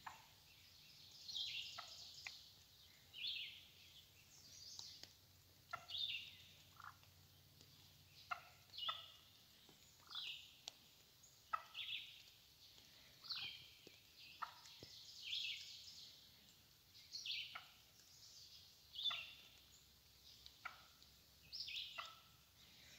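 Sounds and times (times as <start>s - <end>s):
turkey calling: 5.7s - 9.4s, 11.4s - 12.3s, 14.4s - 14.8s, 17.3s - 17.9s, 19.0s - 19.7s, 20.3s - 22.9s.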